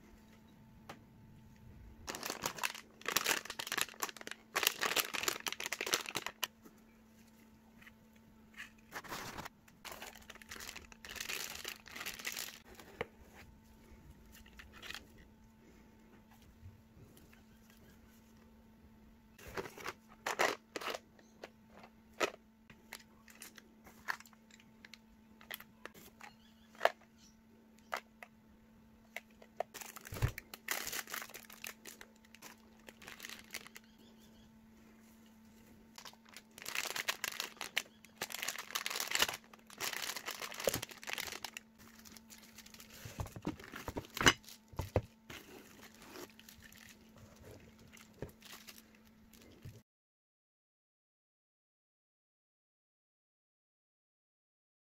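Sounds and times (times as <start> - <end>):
faint low hum: 0.0 - 49.8
plastic packaging crinkling: 2.0 - 6.6, 8.8 - 13.0, 19.4 - 27.0, 29.1 - 34.0, 35.5 - 49.8.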